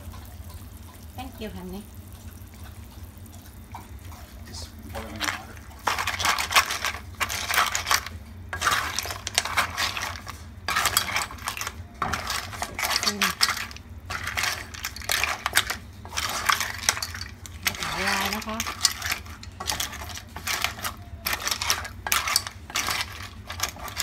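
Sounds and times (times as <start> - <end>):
clams rattling in a metal pot: 5.0 - 24.0.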